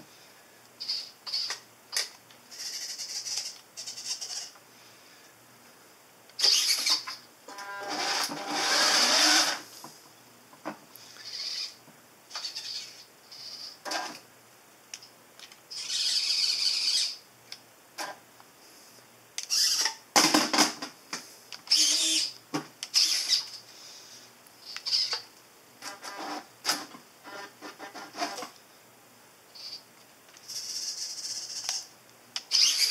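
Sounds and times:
servo motors whining: 7.9s - 9.6s, 21.7s - 22.3s, 32.5s - 32.9s.

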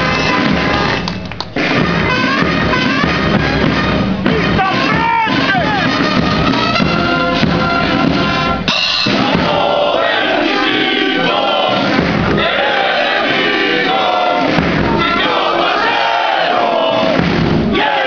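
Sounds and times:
military band music: 0.0s - 18.0s
soldiers singing in unison: 7.8s - 18.0s.

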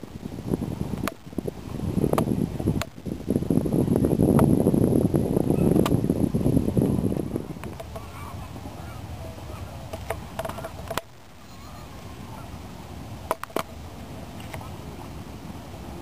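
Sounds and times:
wind rumble on microphone: 0.0s - 16.0s
geese honking faintly: 7.9s - 9.8s, 11.5s - 12.6s.

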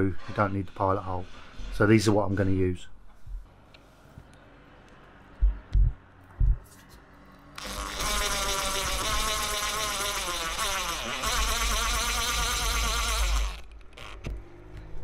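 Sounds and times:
power drill driving screw: 7.6s - 14.3s.

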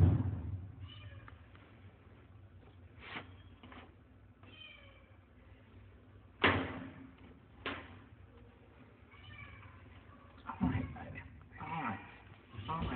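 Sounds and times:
loud knock: 0.0s - 0.6s
cat meowing: 4.4s - 5.1s, 9.1s - 11.2s.

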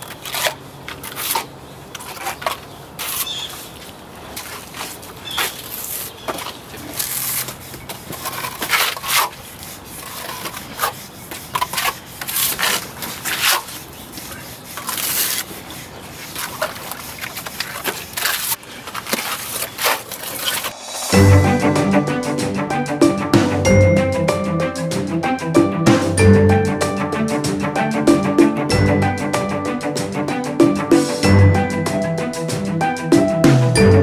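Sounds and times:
trowel scraping on concrete wall: 0.0s - 3.8s, 4.4s - 21.1s.

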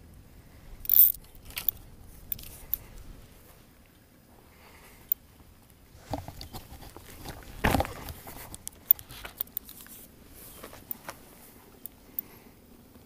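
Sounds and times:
handling clicks and knocks: 5.1s - 12.0s.

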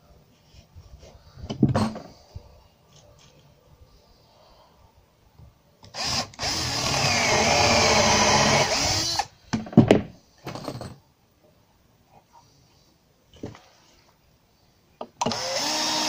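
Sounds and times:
cordless drill driving a screw: 5.9s - 9.3s, 15.2s - 16.0s.

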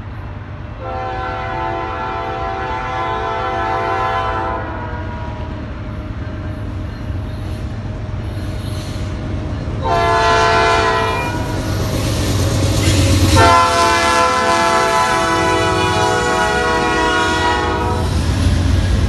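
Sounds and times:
diesel locomotive rumble: 0.0s - 19.0s
locomotive air horn: 0.8s - 5.5s, 9.8s - 11.8s, 13.4s - 18.2s.

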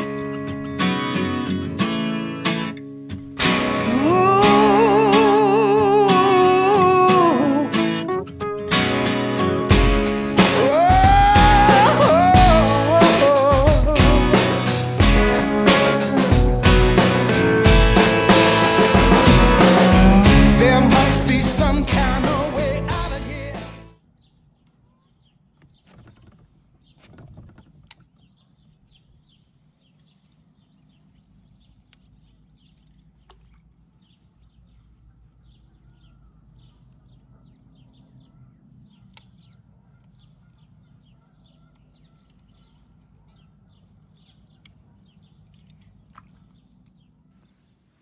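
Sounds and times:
small birds chirping: 24.0s - 48.0s.

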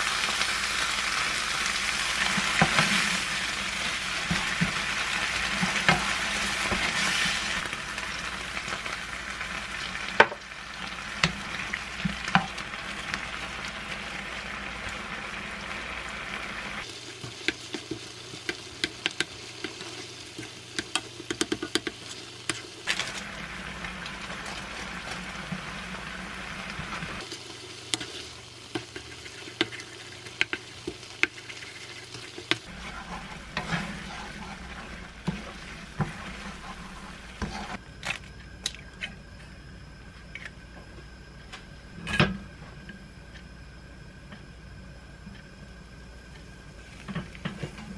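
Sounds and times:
food sizzling in a frying pan: 0.0s - 37.8s
spatula scraping and tapping pan: 5.5s - 7.4s, 17.2s - 22.7s, 27.9s - 37.8s.

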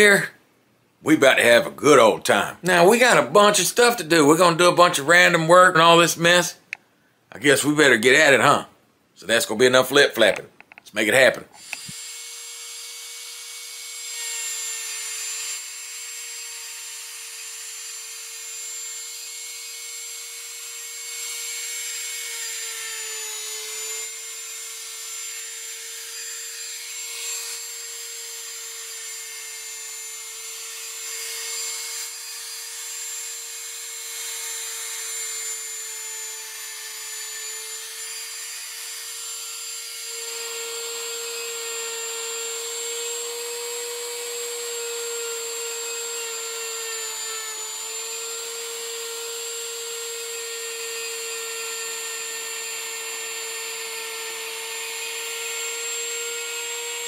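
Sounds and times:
wood router whining: 11.6s - 57.0s.

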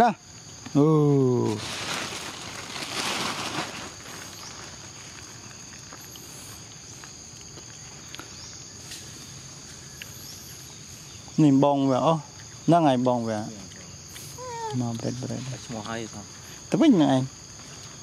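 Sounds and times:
insects trilling: 0.0s - 18.0s
loud rustling: 1.6s - 4.7s.

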